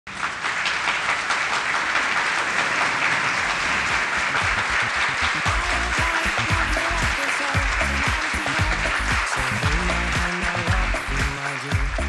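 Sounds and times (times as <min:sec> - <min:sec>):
audience applauding: 0:00.1 - 0:12.0.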